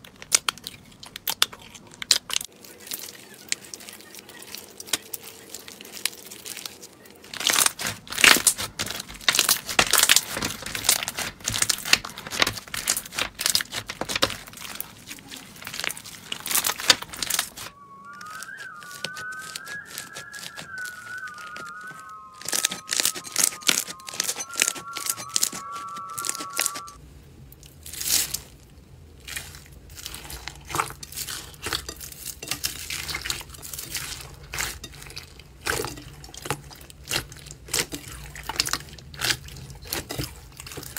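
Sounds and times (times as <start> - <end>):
slime crackling and popping: 0.0 - 21.6
hands squeezing slime: 0.1 - 21.8
faint wavering whistle-like tone: 17.5 - 27.0.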